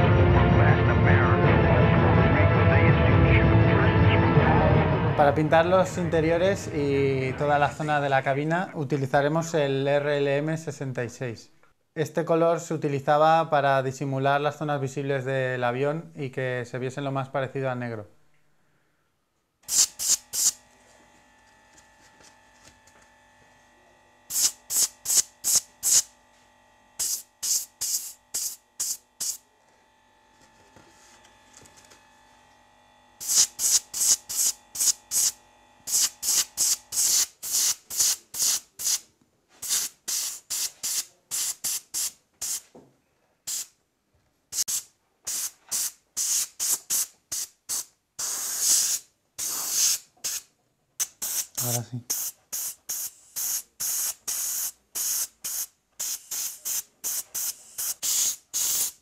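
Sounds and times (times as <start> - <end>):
airbrush spraying in hissing bursts: 19.6 - 20.6, 24.3 - 26.1, 27.0 - 29.4, 33.2 - 39.0, 39.6 - 42.7, 43.5 - 43.8, 44.5 - 59.0.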